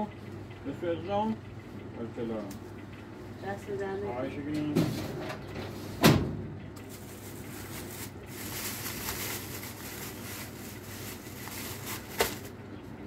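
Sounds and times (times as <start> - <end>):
plastic bags rustling: 6.8 - 12.6.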